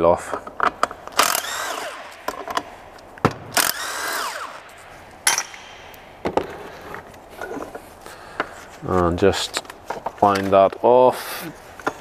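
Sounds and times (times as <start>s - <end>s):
cordless driver spinning bolts: 1.1s - 2.7s, 3.5s - 6.0s.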